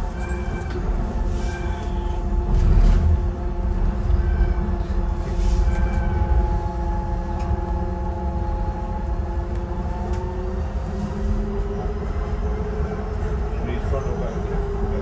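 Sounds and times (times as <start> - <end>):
train wheels rumbling on rail: 0.0 - 15.0.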